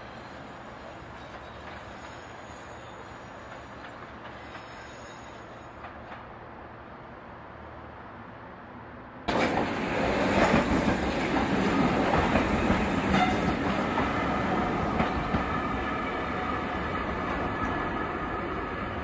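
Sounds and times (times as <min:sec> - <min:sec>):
distant train: 0:00.0 - 0:19.0
train wheels rumbling on rail: 0:09.3 - 0:19.0.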